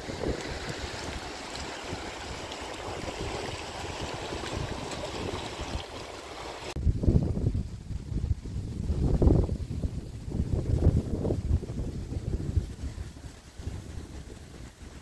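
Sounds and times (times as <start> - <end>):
river rushing over stones: 0.0 - 6.8
wind rumbling on microphone: 0.0 - 15.0.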